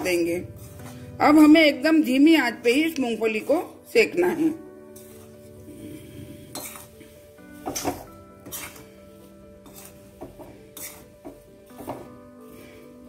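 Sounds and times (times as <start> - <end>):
background music: 0.0 - 13.0
spatula scraping in salt: 0.4 - 1.1, 4.9 - 5.6, 6.3 - 7.1, 7.8 - 9.0, 9.6 - 10.1, 10.8 - 11.1.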